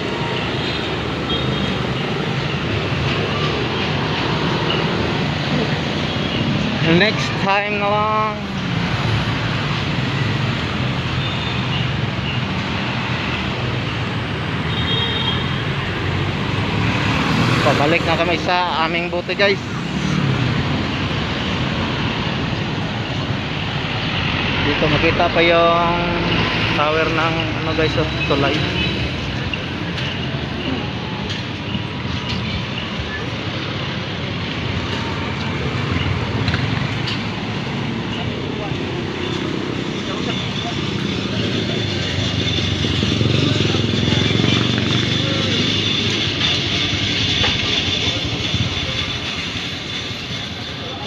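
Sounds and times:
cars going by: 0:00.0 - 0:51.0
road traffic passing: 0:00.0 - 0:51.0
motorcycle passing: 0:19.6 - 0:21.0, 0:39.5 - 0:47.0.

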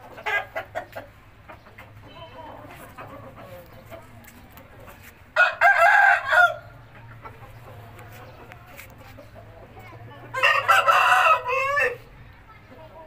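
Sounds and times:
rooster crowing: 0:05.4 - 0:06.7, 0:10.3 - 0:12.0.

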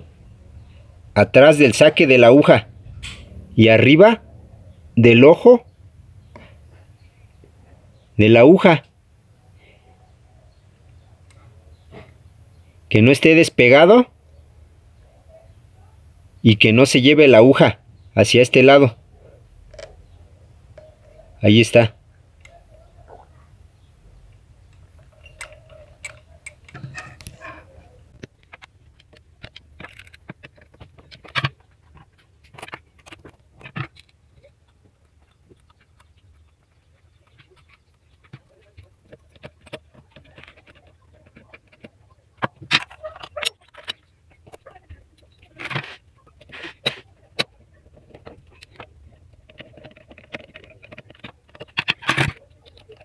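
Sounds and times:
clicks and clatter: 0:24.7 - 0:27.5, 0:28.1 - 0:53.0
metallic clicks and clinks: 0:24.7 - 0:31.5.

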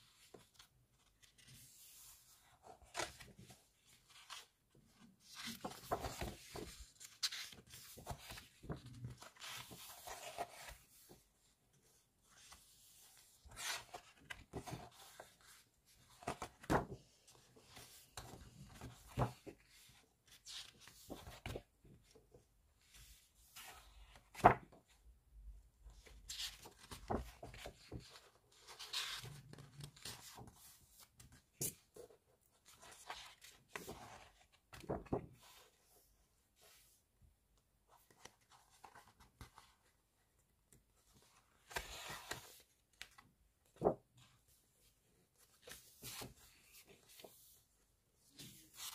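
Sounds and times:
paper pages rustling: 0:00.1 - 0:11.2, 0:11.9 - 0:22.2, 0:22.9 - 0:24.9, 0:26.0 - 0:35.8, 0:37.9 - 0:40.0, 0:41.0 - 0:44.5, 0:45.4 - 0:47.6.

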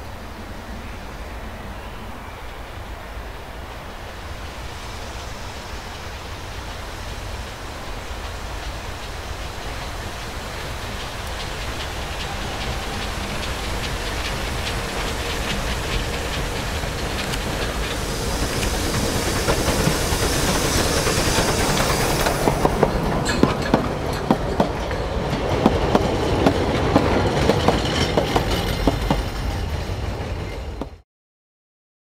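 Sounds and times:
steam locomotive train rolling past: 0:00.0 - 0:31.0
wheels clattering over rail joints: 0:08.2 - 0:31.0.

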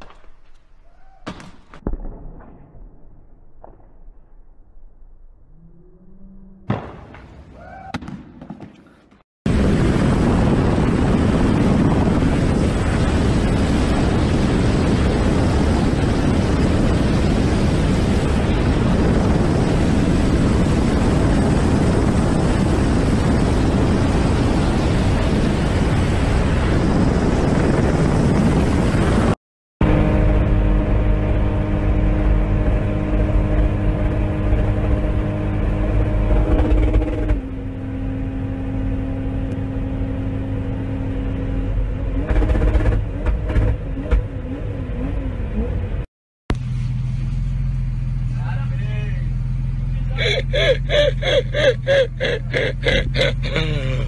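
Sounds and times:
wind rushing over microphone: 0:09.5 - 0:37.4
helicopter rotor and engine roar: 0:09.5 - 0:43.7.

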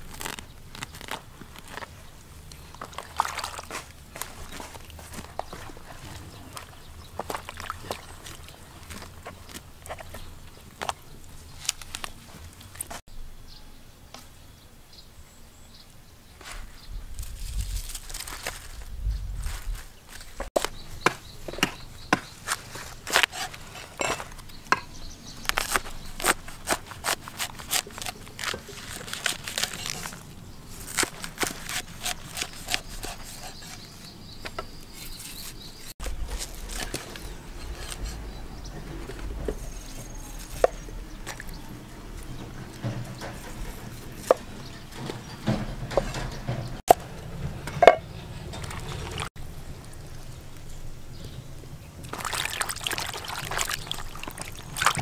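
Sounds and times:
low rumble: 0:18.6 - 0:19.9, 0:36.1 - 0:44.0.

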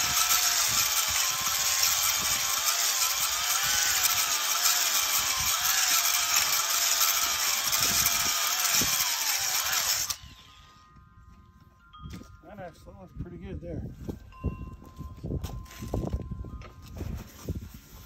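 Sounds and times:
cylinder hone grinding: 0:00.0 - 0:10.8
electric drill whine: 0:00.0 - 0:10.8.

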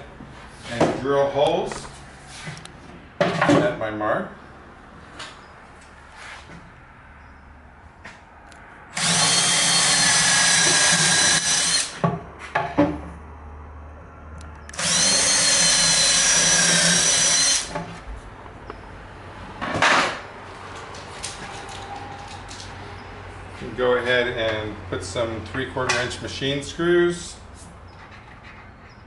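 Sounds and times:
cordless drill boring wood: 0:09.0 - 0:12.0, 0:14.7 - 0:17.7.

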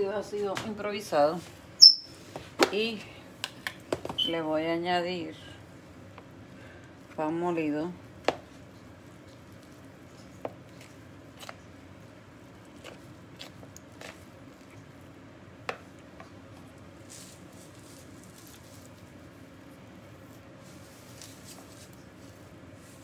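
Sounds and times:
hand squishing mixture: 0:05.7 - 0:23.0.

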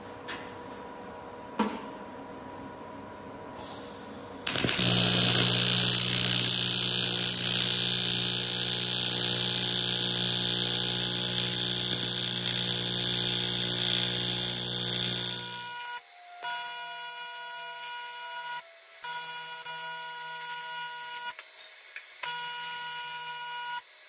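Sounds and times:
welding arc buzzing: 0:04.4 - 0:16.0.

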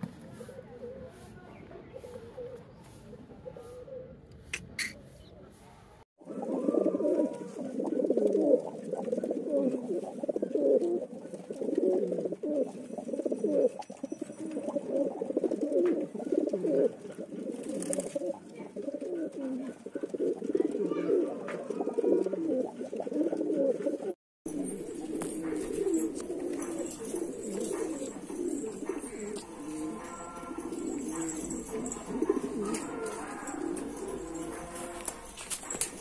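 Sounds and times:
pigeons cooing: 0:01.9 - 0:04.2, 0:06.2 - 0:36.0.

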